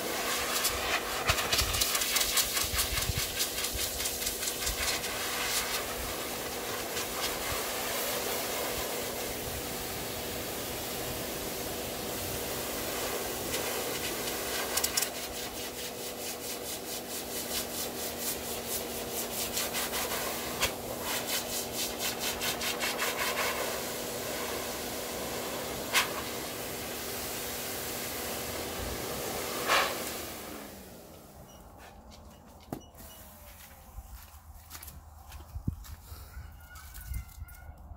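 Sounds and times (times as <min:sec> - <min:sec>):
air fluttering through fur: 0:00.0 - 0:11.3, 0:12.2 - 0:26.6
pet dryer blowing air: 0:00.0 - 0:31.4.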